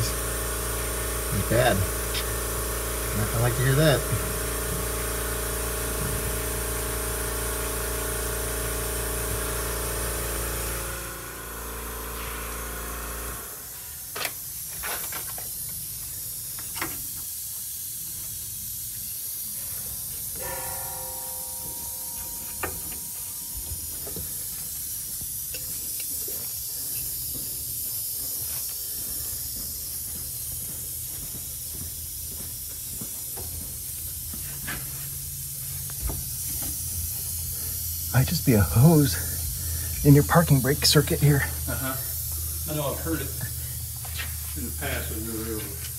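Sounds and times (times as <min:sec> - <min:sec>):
compressed air hissing: 0:00.0 - 0:07.8, 0:08.8 - 0:20.4, 0:22.0 - 0:45.9
mechanical hum: 0:00.0 - 0:45.9.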